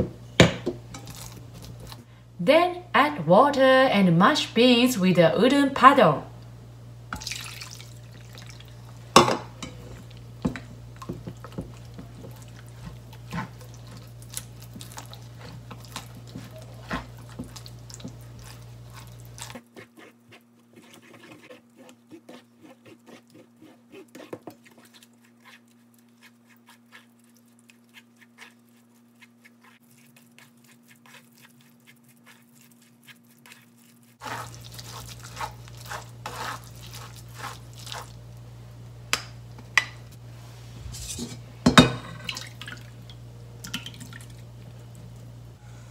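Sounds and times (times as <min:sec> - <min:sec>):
water pouring onto beans: 0:07.2 - 0:08.8
beans squished against sieve: 0:22.6 - 0:38.2.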